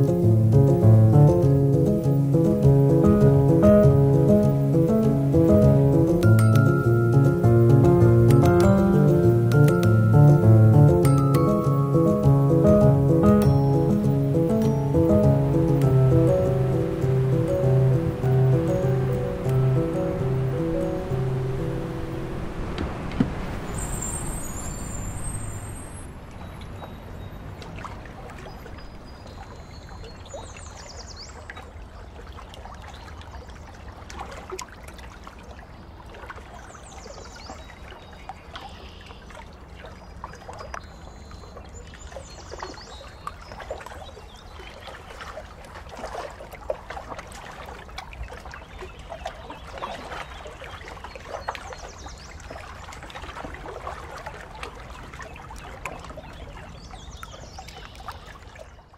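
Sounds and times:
water lapping in pool: 0.0s - 58.9s
bird chirping: 23.6s - 27.5s.

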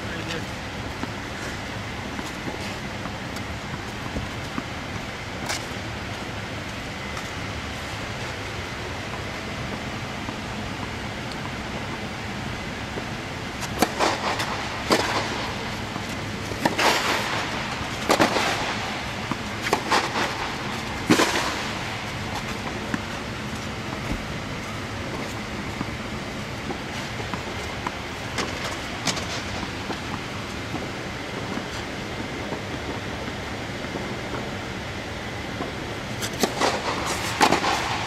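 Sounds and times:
racket striking ball: 12.9s - 23.0s, 36.2s - 38.0s.

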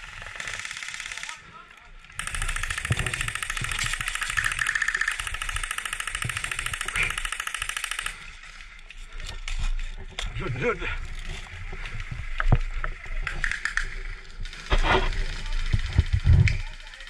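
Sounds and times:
airsoft gun firing full auto: 0.2s - 1.4s, 2.2s - 8.2s.

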